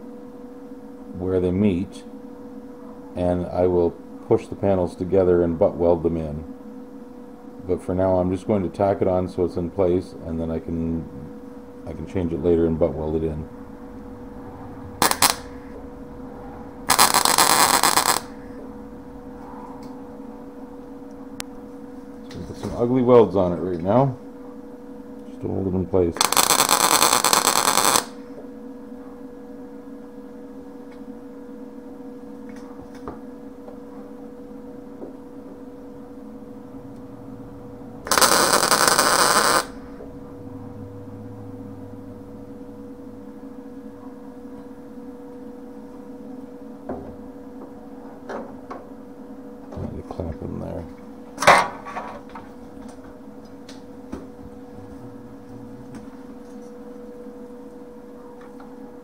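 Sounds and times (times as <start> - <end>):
electrical hum: 0.0 - 59.0
welding arc crackle: 15.0 - 15.6, 16.9 - 18.6, 26.2 - 28.2, 38.0 - 39.8.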